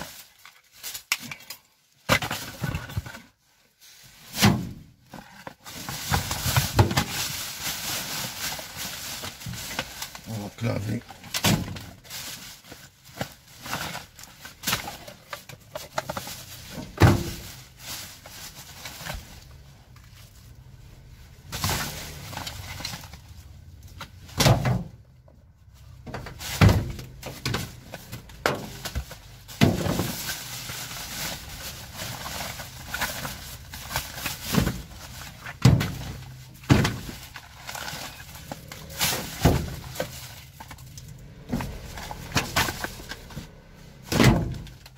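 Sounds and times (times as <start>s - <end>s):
plastic bags rustling: 0.0s - 44.9s
knocks and thuds of rubbish: 2.0s - 3.3s, 4.3s - 10.3s, 11.2s - 12.2s, 13.2s - 19.3s, 23.9s - 25.1s, 26.0s - 44.9s.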